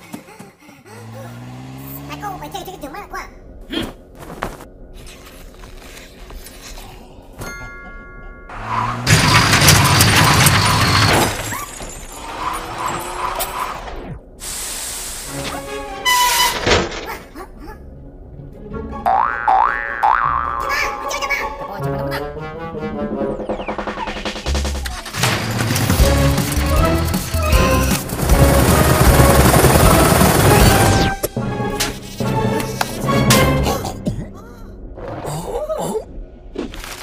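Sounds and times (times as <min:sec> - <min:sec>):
cartoon van engine and road rumble: 0:00.0 - 0:37.0
cartoon music with brass: 0:18.7 - 0:24.9, 0:25.6 - 0:34.0.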